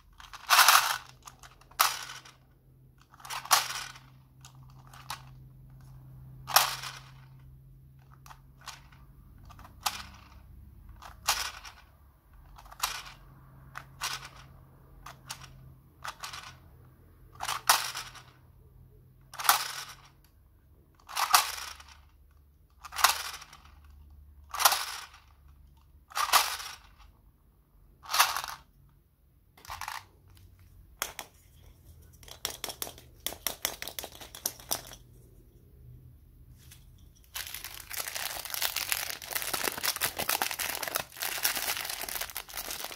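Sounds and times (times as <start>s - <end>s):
plastic toy reels clattering: 0.0s - 5.8s, 6.4s - 16.6s, 17.3s - 18.4s, 19.2s - 20.3s, 21.0s - 27.1s, 28.0s - 28.7s, 32.2s - 35.0s, 36.8s - 42.9s.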